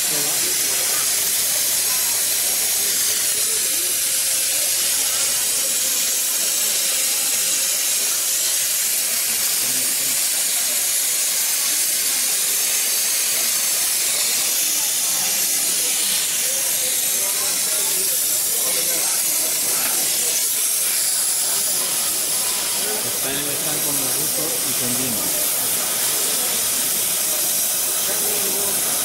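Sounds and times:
plasma torch hissing: 0.0 - 29.0.

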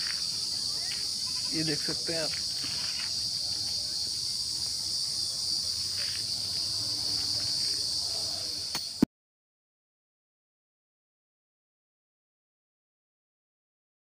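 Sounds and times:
insects buzzing: 0.0 - 9.1
sharp click: 8.7 - 9.1.

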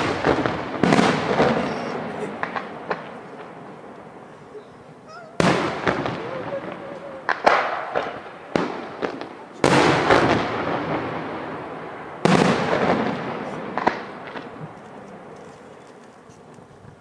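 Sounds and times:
small firework cracks: 0.0 - 17.0
firework shells bursting: 5.3 - 11.2.

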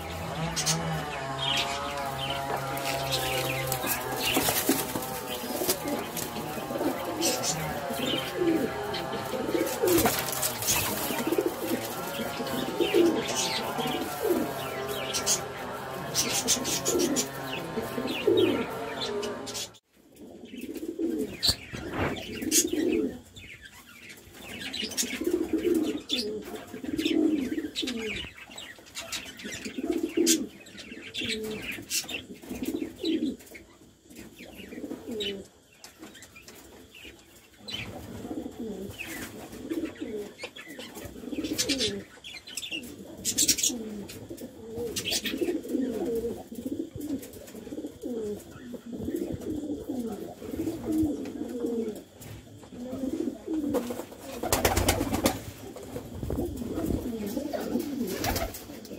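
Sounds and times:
pigeons cooing: 0.0 - 58.9.

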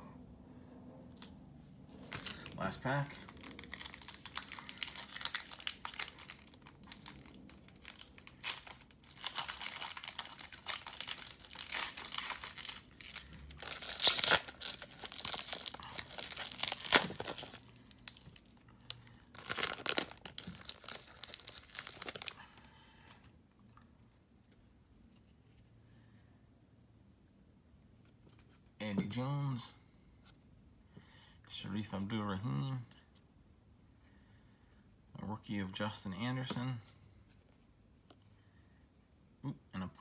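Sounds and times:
foil pack tearing and crinkling: 2.0 - 22.4.

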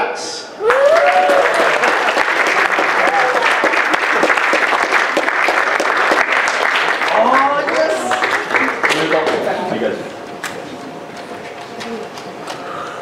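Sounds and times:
audience clapping: 0.6 - 9.5.

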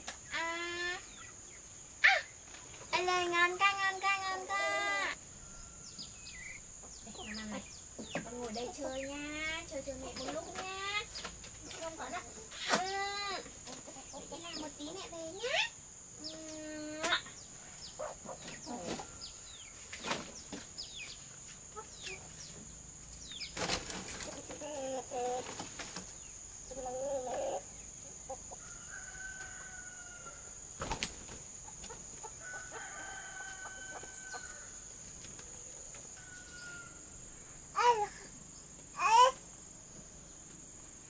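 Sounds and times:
chickens clucking: 5.9 - 15.5, 16.2 - 36.8
rooster crowing: 28.6 - 30.6, 32.4 - 34.8, 36.1 - 37.3.

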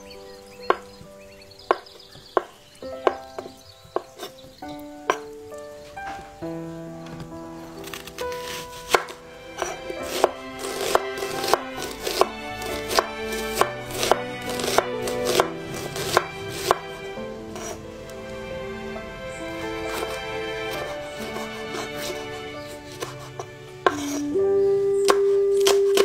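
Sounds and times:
soft background music: 0.0 - 26.0
knife chopping on wooden board: 7.8 - 16.9, 19.8 - 24.3.

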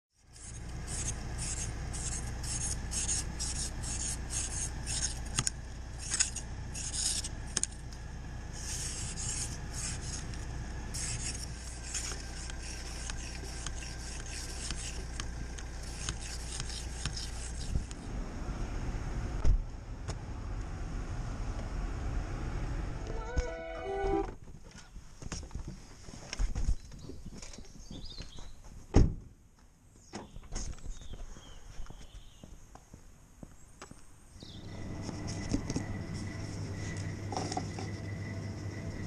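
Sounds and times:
rasping rubbing against microphone: 0.2 - 5.3, 8.6 - 15.2, 15.8 - 17.9
steady low hum: 0.2 - 24.4, 34.3 - 39.0.

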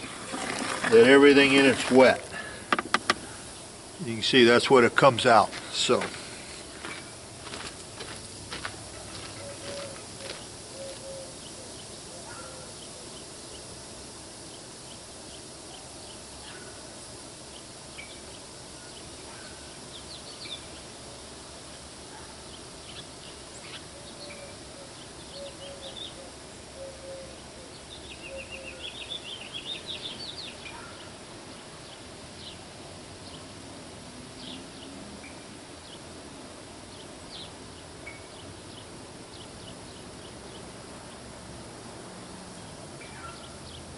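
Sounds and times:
birds chirping: 0.0 - 13.7, 21.8 - 32.6, 42.6 - 43.9
steady faint hiss: 0.0 - 43.9
bird trill: 9.3 - 11.7.

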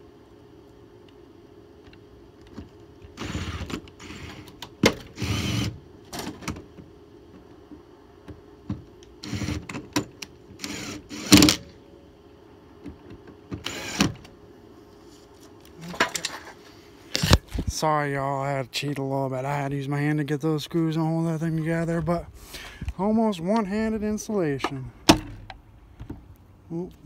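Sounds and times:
screws being driven: 3.2 - 5.8, 9.2 - 9.8, 10.6 - 11.6, 13.6 - 14.2.

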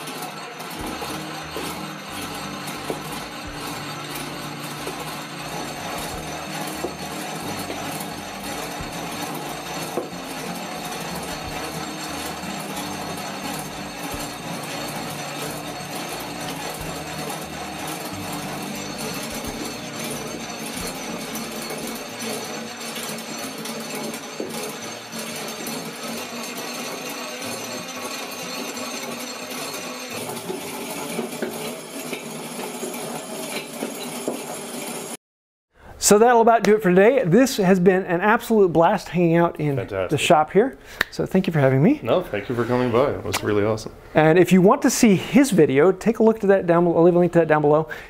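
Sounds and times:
treadle lathe running: 0.0 - 35.2.

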